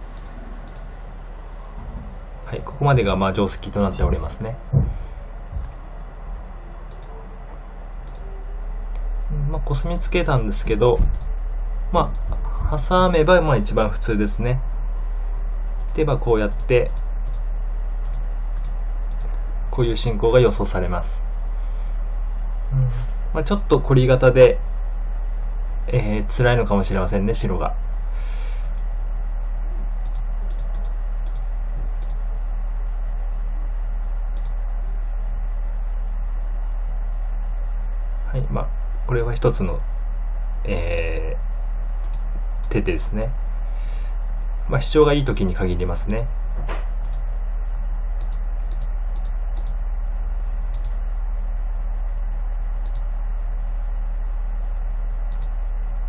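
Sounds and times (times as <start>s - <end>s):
sharp computer clicks: 0.0s - 0.9s, 5.6s - 5.9s, 6.9s - 7.1s, 8.0s - 8.3s, 10.9s - 11.4s, 12.0s - 12.4s, 15.7s - 19.4s, 28.6s - 28.9s, 30.0s - 32.2s, 34.3s - 34.6s, 42.0s - 43.2s, 47.0s - 47.3s, 48.2s - 49.8s, 50.7s - 51.0s, 52.8s - 53.1s, 55.3s - 55.6s
low electrical hum: 0.0s - 56.0s.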